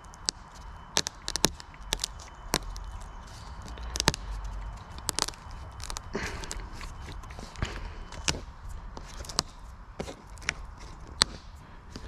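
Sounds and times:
brittle vinyl snapping by hand: 0:00.0 - 0:03.1, 0:03.7 - 0:06.1.

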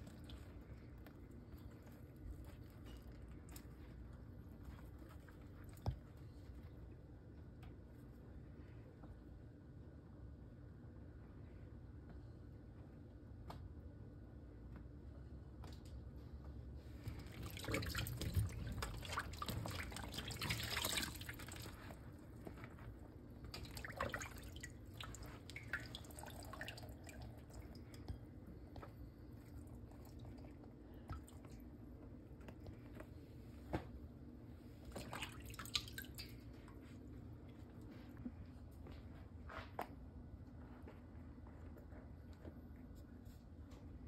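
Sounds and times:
water dripping into a bowl: 0:23.4 - 0:28.2, 0:35.0 - 0:36.5.

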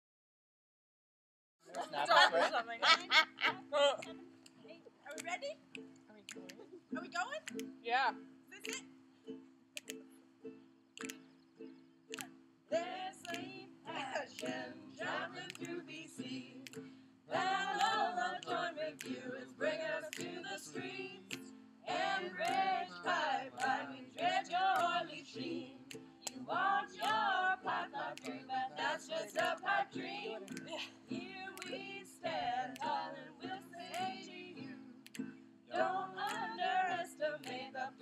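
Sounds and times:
strummed ukulele and guitar: 0:03.3 - 0:38.0
group singing: 0:12.7 - 0:38.0.

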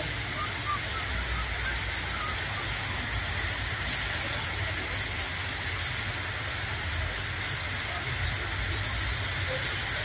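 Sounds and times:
floodwater running: 0:00.0 - 0:10.0
torrential rain pouring: 0:00.0 - 0:10.0.

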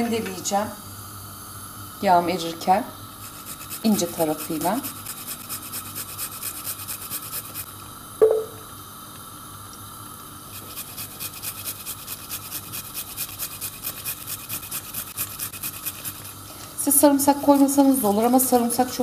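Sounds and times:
garlic rasping on metal grater: 0:03.2 - 0:07.7, 0:10.5 - 0:18.8
short knock: 0:08.2 - 0:08.6.

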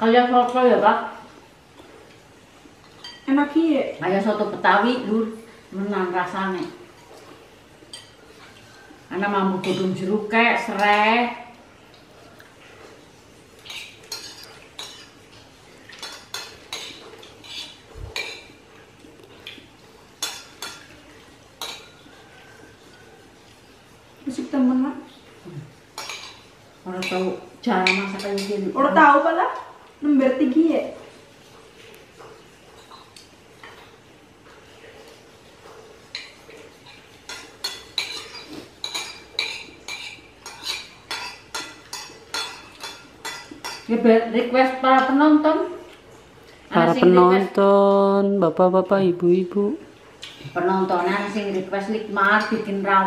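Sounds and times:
spoons clinking on plates: 0:02.8 - 0:03.3, 0:07.9 - 0:08.6, 0:13.6 - 0:18.6, 0:20.2 - 0:22.2, 0:26.0 - 0:28.7, 0:36.1 - 0:44.0.

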